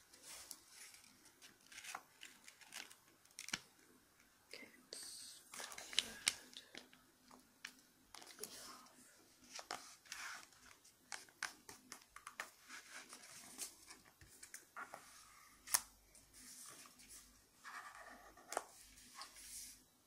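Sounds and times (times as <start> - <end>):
paper rustling and crinkling: 0.1 - 3.6.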